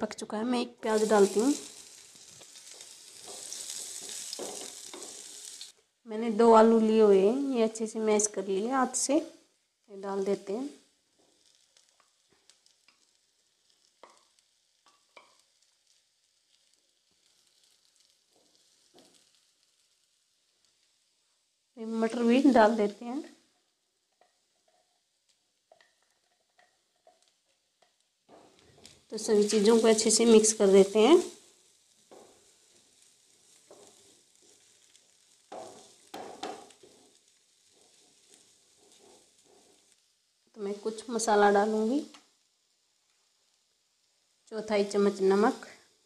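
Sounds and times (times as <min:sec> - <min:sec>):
onion sizzling in oil: 0:00.0 - 0:46.0
spatula scraping and tapping pan: 0:02.4 - 0:05.7, 0:13.9 - 0:15.6, 0:18.3 - 0:19.4, 0:24.1 - 0:30.5, 0:32.0 - 0:40.0.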